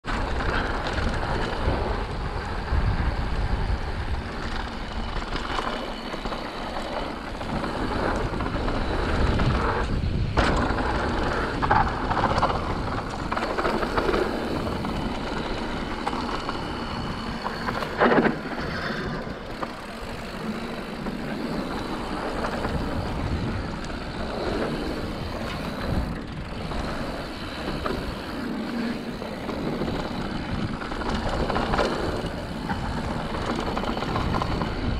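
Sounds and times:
bike tyres rolling over dirt: 0:00.0 - 0:34.9.

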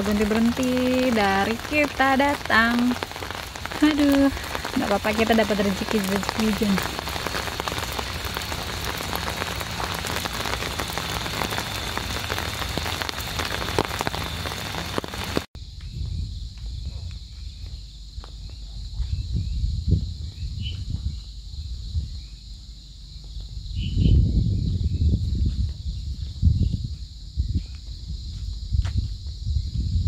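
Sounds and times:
heavy rain pattering: 0:00.0 - 0:15.5
low rumble: 0:00.0 - 0:28.8.

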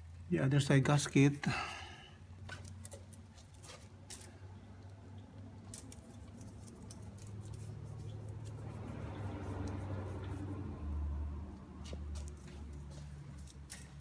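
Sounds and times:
hands handling engine parts: 0:02.3 - 0:08.9, 0:11.8 - 0:14.0.

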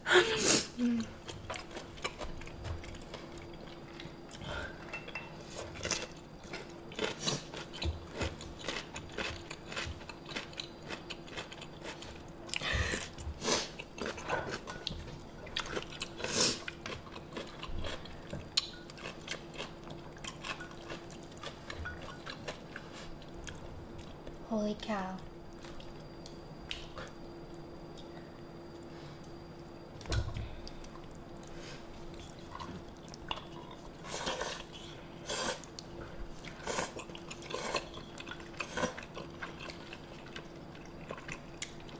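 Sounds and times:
faint steady hum: 0:00.0 - 0:41.9
chewing and slurping noodles: 0:05.4 - 0:24.2, 0:30.7 - 0:41.9.

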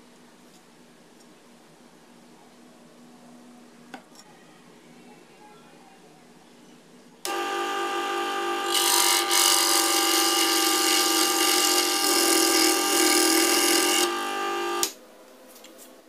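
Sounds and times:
scroll saw cutting wood: 0:07.3 - 0:14.9.

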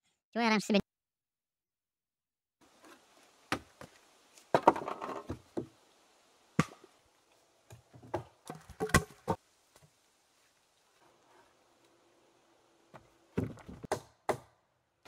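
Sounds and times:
wooden logs knocking: 0:03.5 - 0:05.8, 0:07.7 - 0:09.4, 0:12.9 - 0:14.5.

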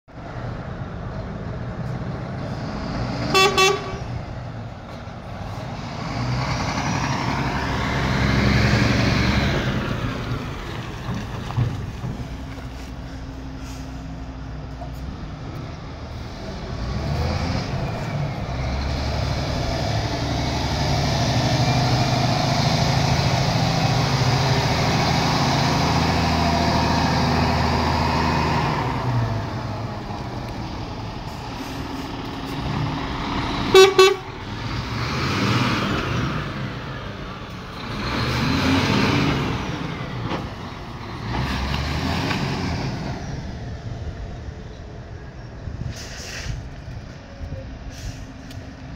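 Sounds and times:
diesel truck engine running: 0:00.1 - 0:48.9
truck horn toot: 0:03.3 - 0:04.2, 0:33.7 - 0:34.4.

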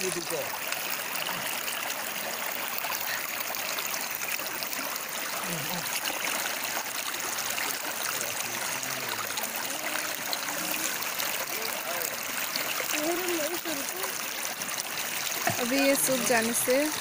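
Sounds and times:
river flowing over stones: 0:00.0 - 0:17.0.

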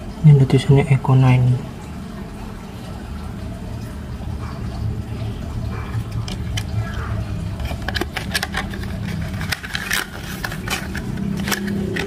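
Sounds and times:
steady low hum: 0:00.0 - 0:12.0
plastic packaging crackling: 0:07.6 - 0:12.0.

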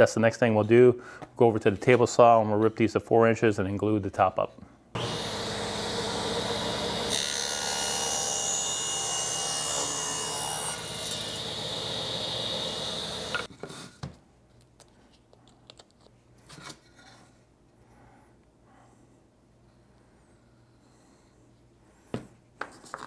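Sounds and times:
saw ripping wood: 0:05.0 - 0:13.5
table saw whining: 0:05.0 - 0:13.5.

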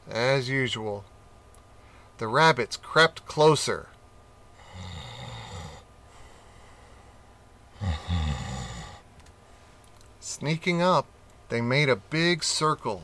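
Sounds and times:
long snores: 0:04.6 - 0:05.9, 0:07.8 - 0:09.0.

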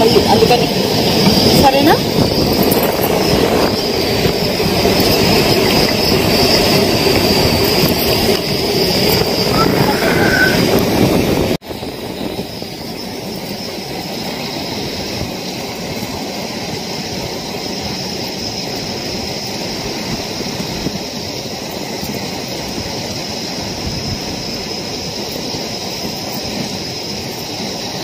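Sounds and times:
sea surf: 0:00.0 - 0:12.4
wind: 0:00.0 - 0:28.0.

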